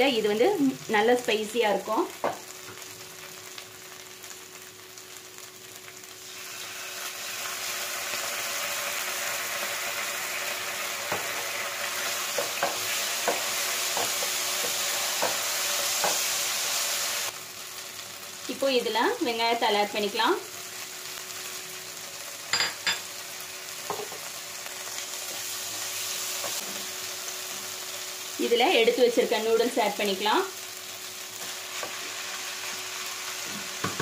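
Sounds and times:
vegetables sizzling in a pan: 0.0s - 34.0s.

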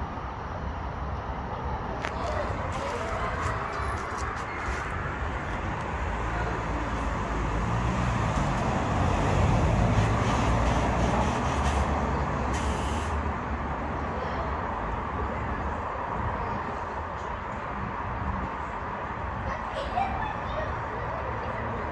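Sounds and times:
vehicle engine rumbling: 0.0s - 14.0s
brief hiss: 12.5s - 13.2s.

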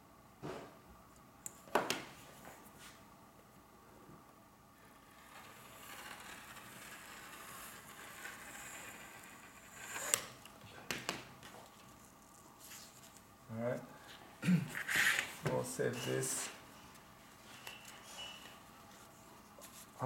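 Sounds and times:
rotary cutter cutting fabric: 5.0s - 10.4s.

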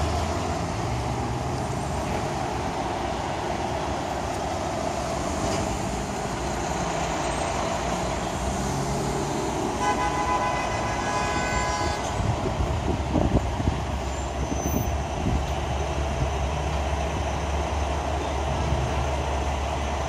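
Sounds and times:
city traffic rumble: 0.0s - 20.0s
vehicle horn: 9.8s - 12.2s.

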